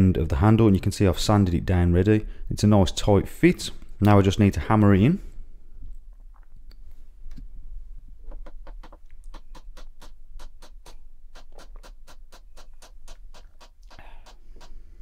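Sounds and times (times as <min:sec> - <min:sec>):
rapid light ticks: 0:08.3 - 0:14.8.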